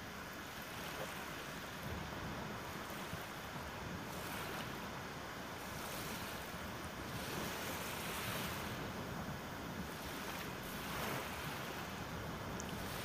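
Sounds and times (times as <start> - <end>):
wind: 0.0 - 13.0
sea waves washing: 0.1 - 13.0.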